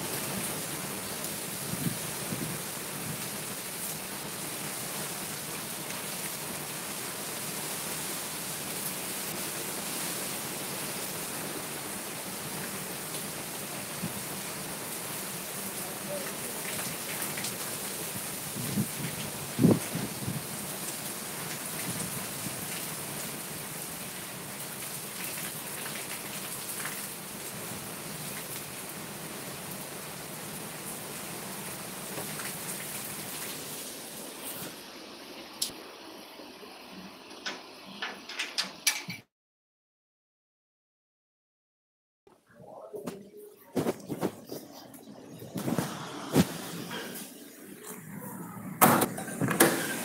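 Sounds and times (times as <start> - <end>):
heavy rain on pavement: 0.0 - 38.4, 43.8 - 44.8, 45.4 - 50.0
raindrop ticks: 16.2 - 17.7.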